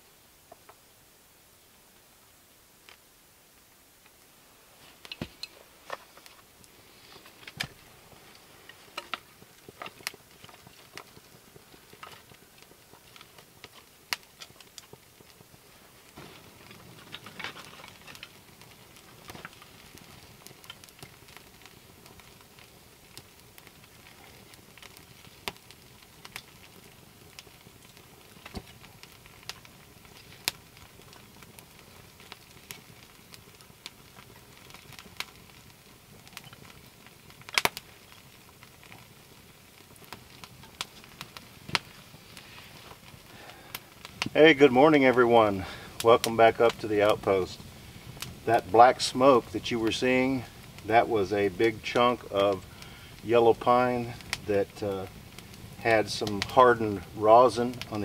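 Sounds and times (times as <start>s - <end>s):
campfire crackling and popping: 0.0s - 1.0s, 1.6s - 58.0s.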